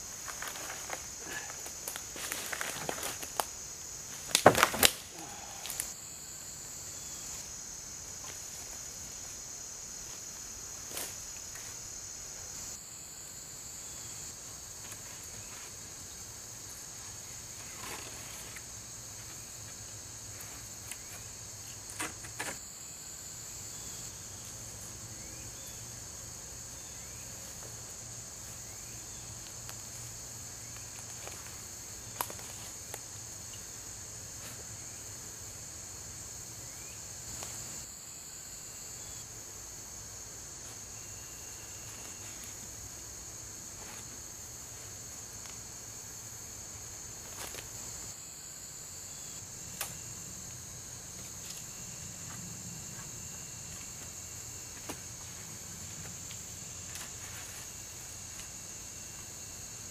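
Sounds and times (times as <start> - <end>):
high-pitched insect chorus: 0.0 - 59.9
sticks snapping and knocking: 4.2 - 5.9.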